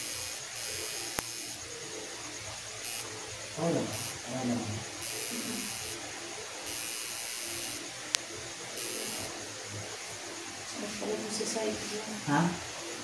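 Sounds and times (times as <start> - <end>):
tattoo machine buzzing: 0.0 - 1.8, 2.8 - 6.0, 6.6 - 7.8, 8.7 - 9.4.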